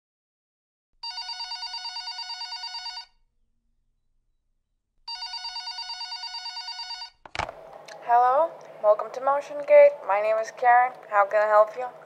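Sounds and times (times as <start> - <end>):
telephone bell ringing: 1.0 - 3.2, 5.1 - 7.2.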